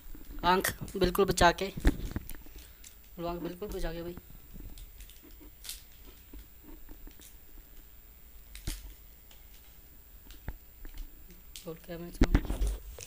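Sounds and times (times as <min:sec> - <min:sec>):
soft packet rustling: 0:00.0 - 0:13.0.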